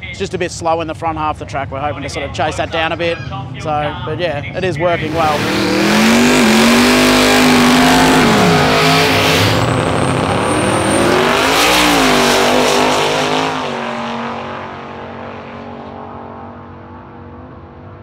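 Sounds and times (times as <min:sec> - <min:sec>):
race car engine revving: 0:04.6 - 0:18.0
high turbo whistle: 0:05.0 - 0:13.8.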